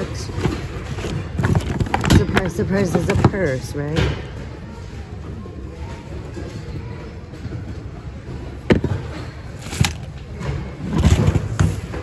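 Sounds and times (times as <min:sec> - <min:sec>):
small items knocking and dropping: 0:08.7 - 0:12.0.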